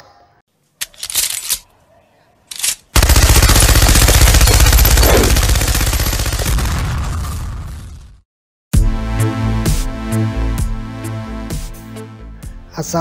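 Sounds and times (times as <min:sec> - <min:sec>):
machine gun firing rapid burst: 0:03.0 - 0:06.8.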